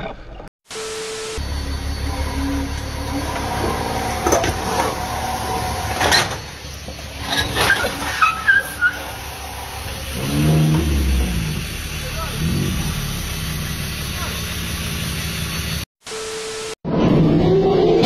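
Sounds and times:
tow truck engine running low: 1.4s - 15.9s
squeaky creaks: 1.9s - 10.2s.

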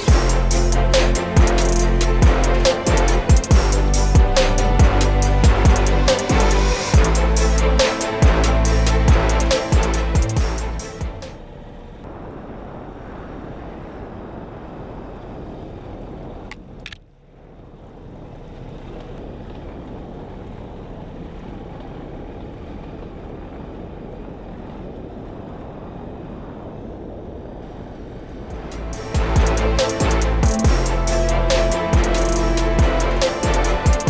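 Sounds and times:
wind noise: 12.0s - 17.0s, 18.2s - 34.0s.

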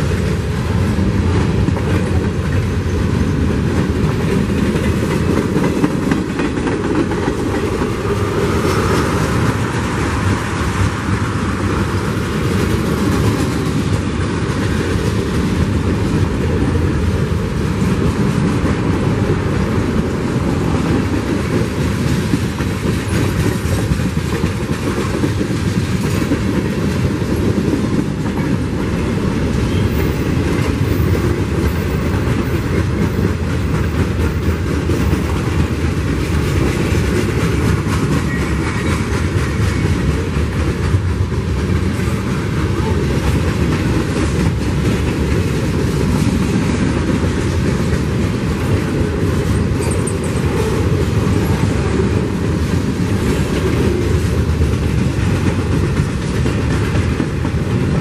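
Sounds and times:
train wheels clattering on rails: 0.0s - 58.0s.

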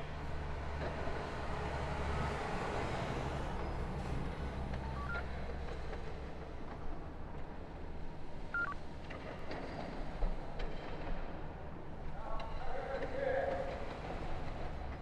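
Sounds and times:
two-note scanner beeps: 8.6s - 8.8s.

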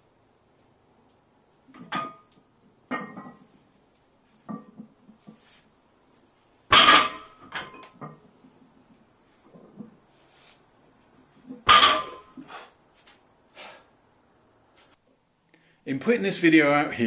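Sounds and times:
weight plates clinking and rattling: 2.9s - 3.5s
barbell set down clank: 6.7s - 8.0s, 11.6s - 12.3s.

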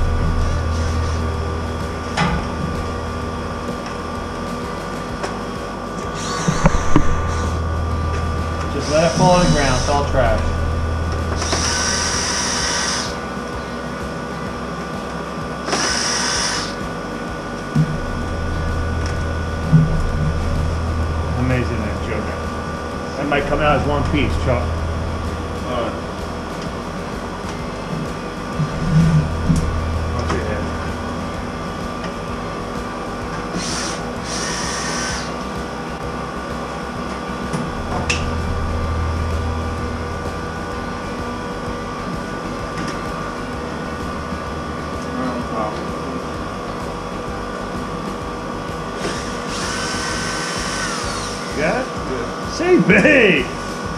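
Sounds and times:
steady low hum: 0.0s - 53.9s
cordless screw gun whining: 11.3s - 13.2s, 15.7s - 16.9s, 33.5s - 35.6s, 49.0s - 51.6s.

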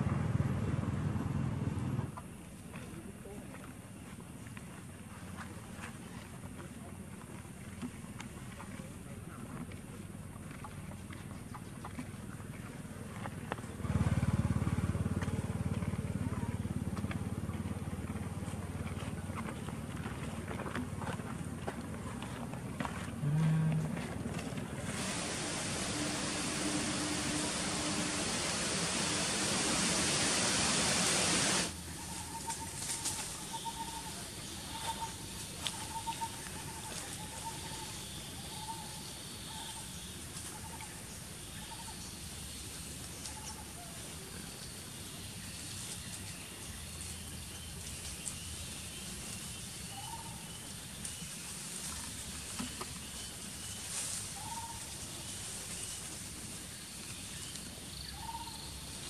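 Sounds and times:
loud hiss: 24.8s - 31.8s.

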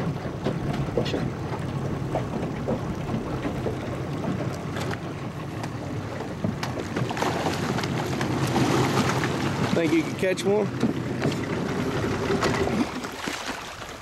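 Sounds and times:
water wash: 0.0s - 14.0s
fish splashing at water surface: 7.0s - 10.0s, 12.4s - 14.0s.

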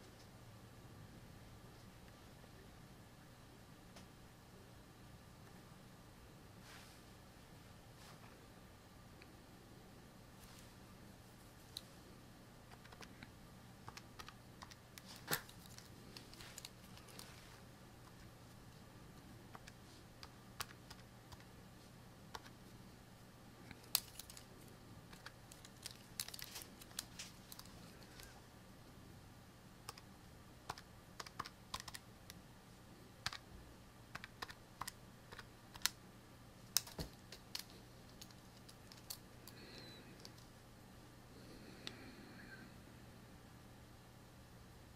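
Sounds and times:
faint low hum: 0.0s - 44.9s
keys clicking: 36.7s - 39.2s.

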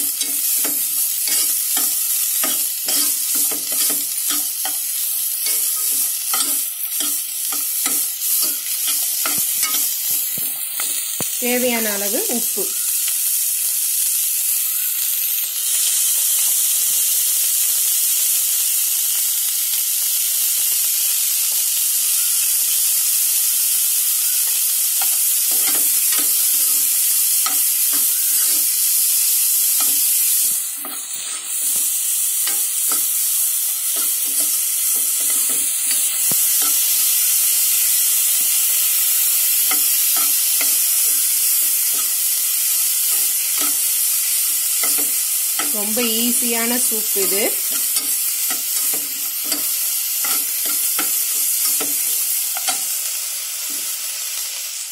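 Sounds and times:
metal spoon scraping a pan: 0.0s - 11.2s, 24.3s - 53.1s
vegetables sizzling in a pan: 0.0s - 54.9s.

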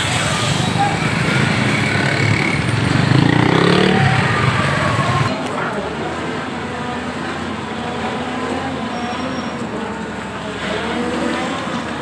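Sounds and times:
diesel engine running: 0.0s - 8.6s.

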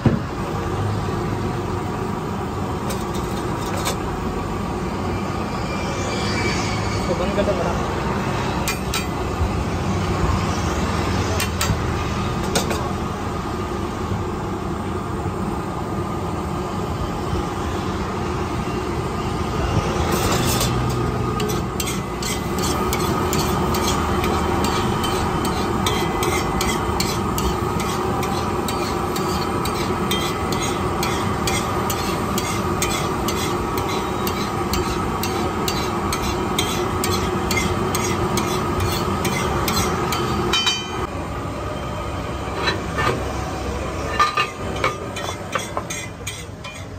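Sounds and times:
spatula scraping a griddle: 2.9s - 4.0s, 20.0s - 40.5s, 44.0s - 46.9s
eggs sizzling on a griddle: 20.7s - 40.5s.

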